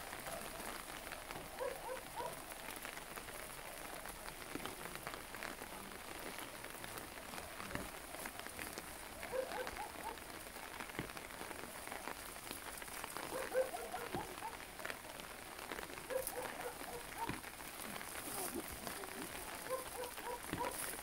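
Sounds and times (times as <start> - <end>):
light rain pattering on umbrellas: 0.0 - 21.0.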